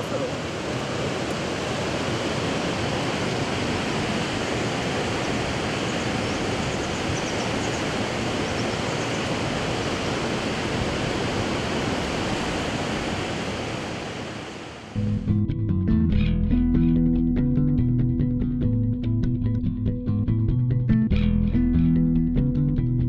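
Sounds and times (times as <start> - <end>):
river rushing: 0.0 - 15.0.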